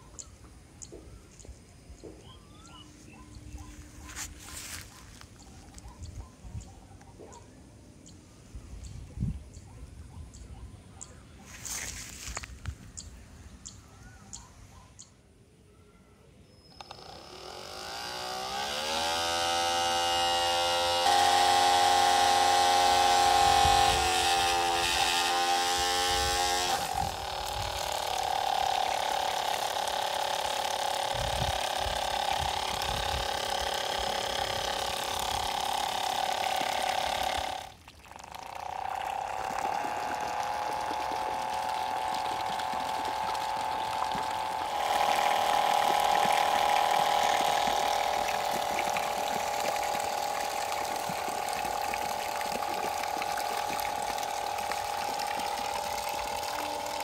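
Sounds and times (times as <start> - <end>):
small electric motor whining: 16.7 - 57.0
water rushing and splashing: 37.7 - 57.0.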